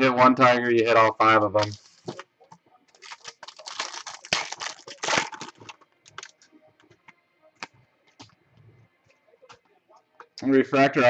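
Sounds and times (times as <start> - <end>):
foil card pack crinkling and tearing: 2.9 - 6.4.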